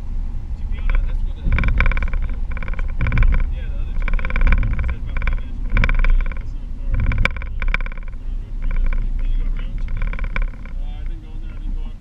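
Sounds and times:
car engine and tyre rumble: 0:00.0 - 0:12.0.

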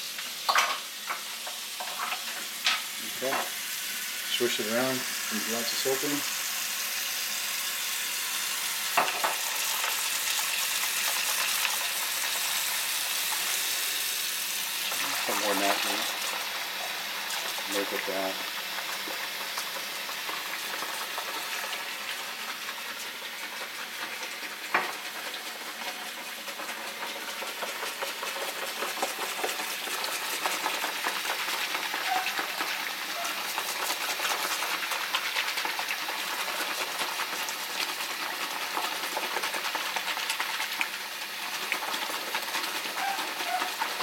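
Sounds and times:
faucet running into sink: 0:07.4 - 0:19.8.

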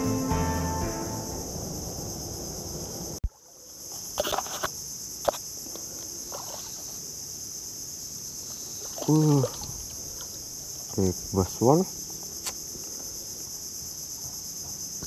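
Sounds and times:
guitar music: 0:00.0 - 0:02.2
insect chorus: 0:00.0 - 0:15.0.

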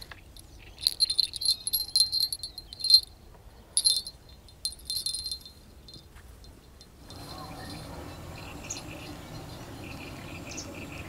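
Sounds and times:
small bell jingling: 0:00.4 - 0:03.2, 0:03.8 - 0:08.1.

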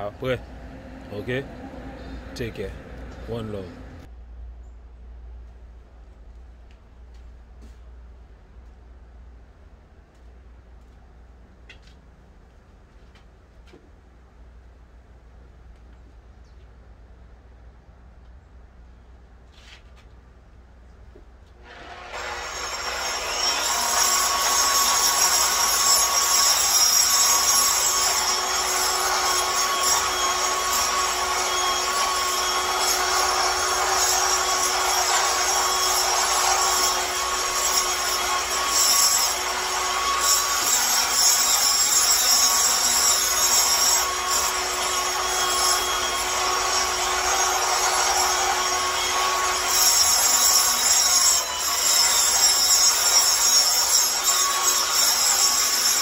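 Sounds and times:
angle grinder grinding concrete: 0:21.6 - 0:56.0.

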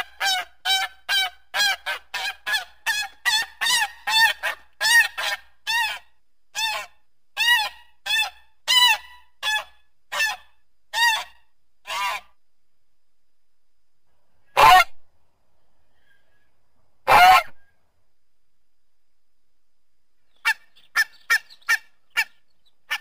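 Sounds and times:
goose honking: 0:17.1 - 0:17.6.

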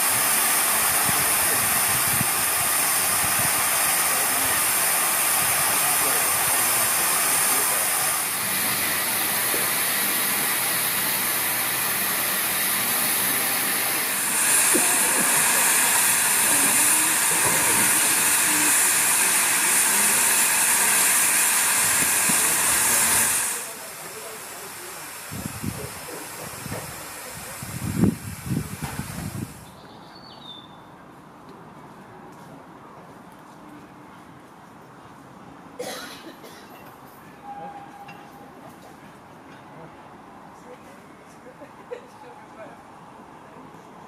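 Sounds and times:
steam hissing loudly: 0:00.0 - 0:29.7.

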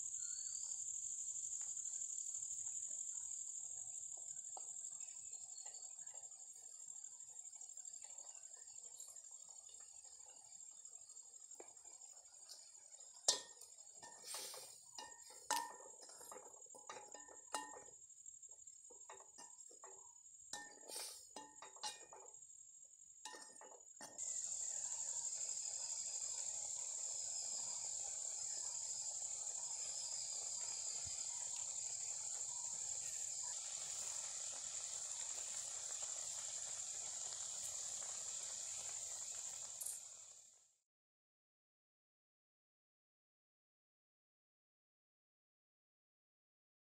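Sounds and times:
steady hiss: 0:00.0 - 0:22.1, 0:23.3 - 0:40.7
metal ladle knocking on pot: 0:13.3 - 0:14.2, 0:15.0 - 0:18.0, 0:23.3 - 0:23.8
high insect-like drone: 0:24.1 - 0:40.4.

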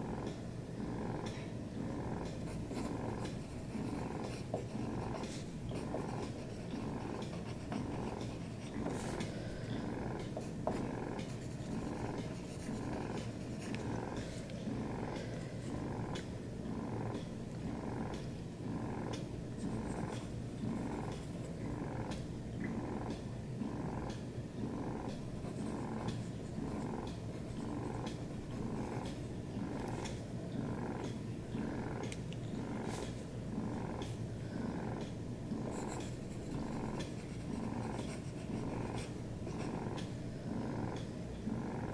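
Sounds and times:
cat purring: 0:00.0 - 0:41.9
pencil scratching on paper: 0:02.2 - 0:16.2, 0:19.6 - 0:21.6, 0:25.4 - 0:30.2, 0:35.6 - 0:40.1.

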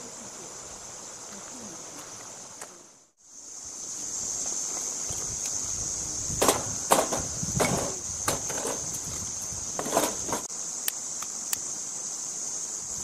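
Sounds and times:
high insect drone: 0:00.0 - 0:13.0
firewood logs knocking: 0:06.4 - 0:09.0.

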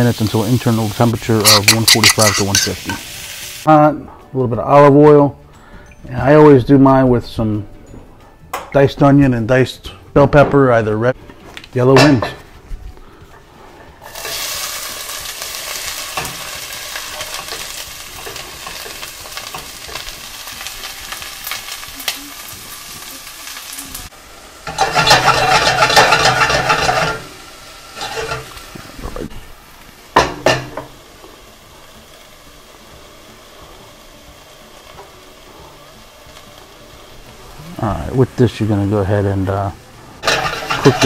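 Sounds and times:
vegetables sizzling in oil: 0:00.0 - 0:03.7, 0:14.0 - 0:41.0.

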